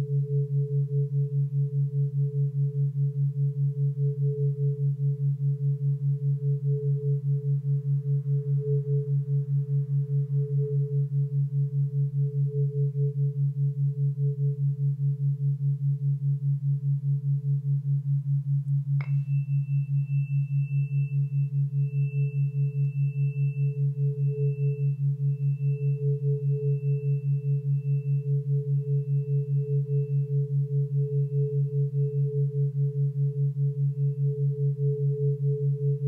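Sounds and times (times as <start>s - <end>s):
tuning fork ringing: 0.0s - 36.0s
tuning fork struck tap: 18.9s - 32.3s.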